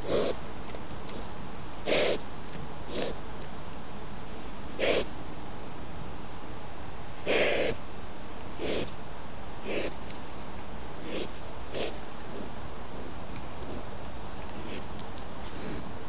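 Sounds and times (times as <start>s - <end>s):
wild boar breathy calls: 0.0s - 0.4s, 1.8s - 2.2s, 2.9s - 3.2s, 4.8s - 5.1s, 7.2s - 7.8s, 8.6s - 8.9s, 9.6s - 10.0s, 11.0s - 13.9s, 14.5s - 16.0s
steady hiss: 0.0s - 16.0s.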